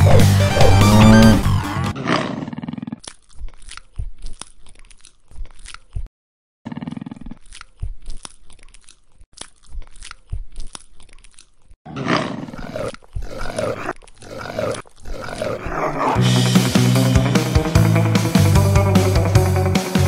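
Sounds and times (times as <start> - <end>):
monster-like growls: 2.0 - 3.0, 11.9 - 16.4
guitar music: 16.2 - 20.0.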